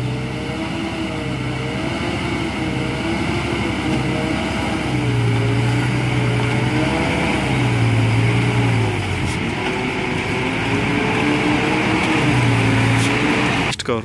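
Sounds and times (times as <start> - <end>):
diesel truck engine labouring: 0.0 - 14.0.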